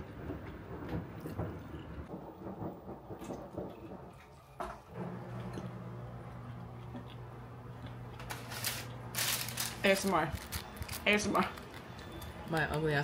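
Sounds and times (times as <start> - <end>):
paper wrapping rustling and crackling: 8.2 - 12.8.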